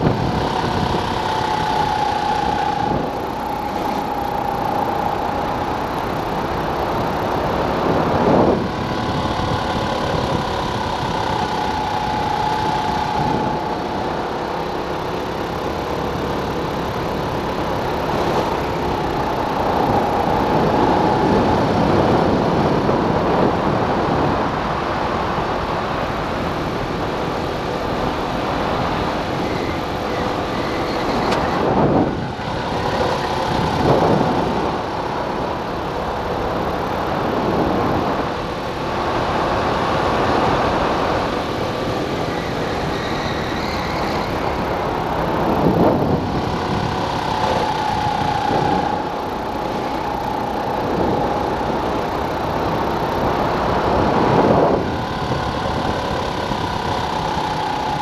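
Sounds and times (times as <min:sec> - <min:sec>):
kart engine running hard: 0:00.0 - 0:58.0.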